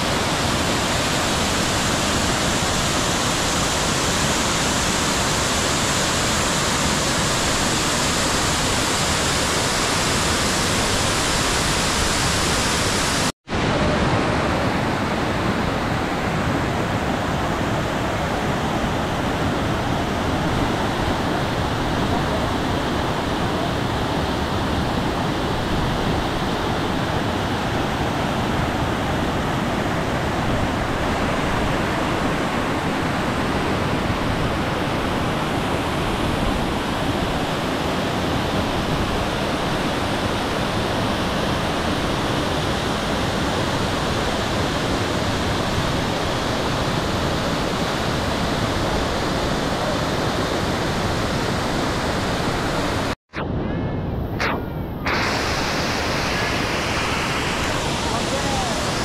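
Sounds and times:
waterfall over rocks: 0.0s - 13.3s, 55.1s - 59.0s.

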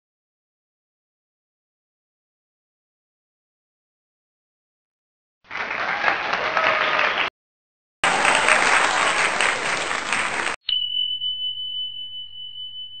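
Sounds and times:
applause: 5.5s - 7.3s, 8.0s - 10.6s
bright chime ringing: 10.6s - 13.0s.

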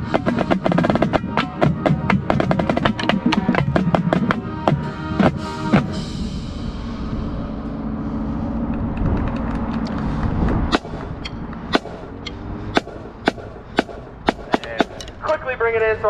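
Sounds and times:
distant marching band chord: 0.0s - 16.0s
low rumble: 3.3s - 15.6s.

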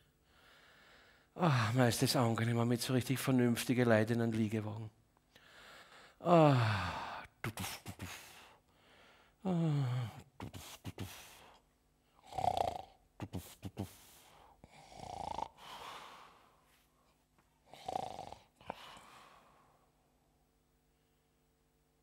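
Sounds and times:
man groaning sigh: 6.2s - 7.4s, 9.4s - 10.3s
man snoring: 12.2s - 16.4s, 17.6s - 19.1s.

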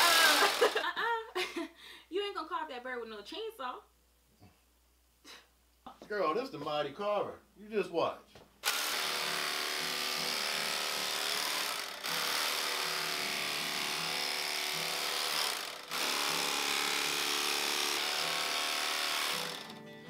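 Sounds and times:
electric carving tool motor buzz: 0.0s - 0.8s, 8.6s - 19.8s.

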